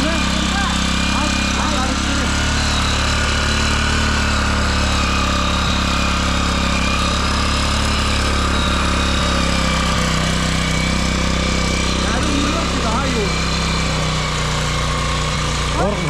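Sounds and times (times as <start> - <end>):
small petrol engine running: 0.0 - 16.0.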